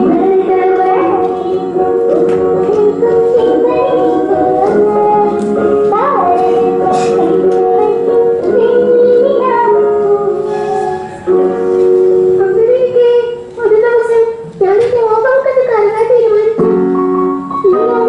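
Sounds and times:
woman singing: 0:00.0 - 0:10.5, 0:17.6 - 0:18.0
instrumental accompaniment: 0:00.0 - 0:15.2, 0:16.1 - 0:18.0.

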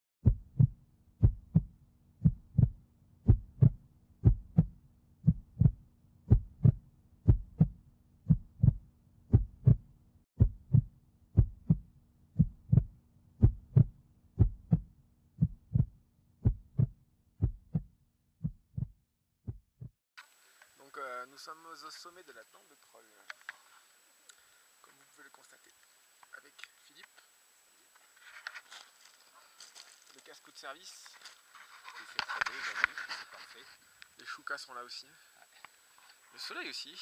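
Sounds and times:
dull low thumps: 0:00.2 - 0:20.0
faint steady hum: 0:20.2 - 0:37.0.

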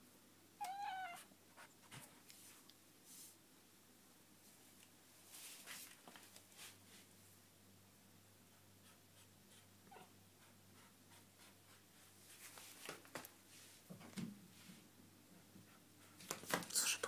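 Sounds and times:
faint room hum: 0:00.0 - 0:17.0
rustles: 0:04.4 - 0:07.2, 0:12.1 - 0:14.9.

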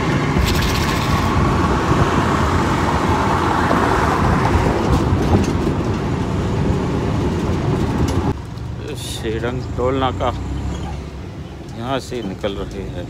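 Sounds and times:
wind rushing: 0:00.0 - 0:08.4
road noise with low rumble: 0:00.0 - 0:13.0.

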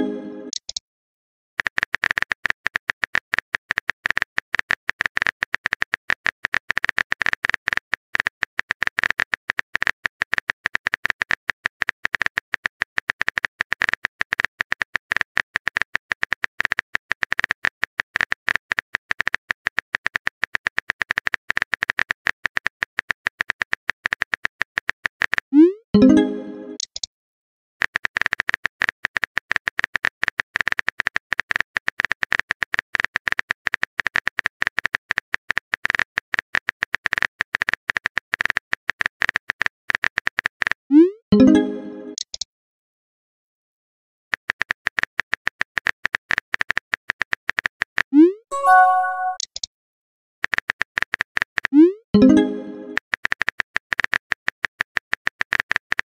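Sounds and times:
rising message-sent blip: 0:48.5 - 0:49.4
phone keyboard typing clicks: 0:48.6 - 0:49.7.

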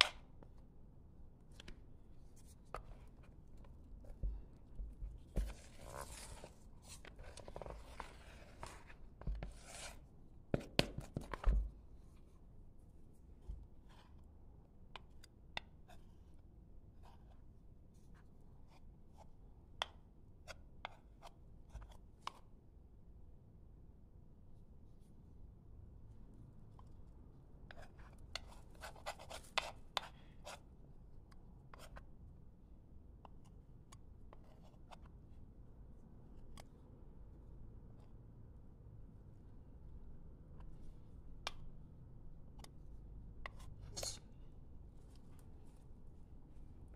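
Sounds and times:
knife scraping wooden spoon: 0:43.8 - 0:44.3.

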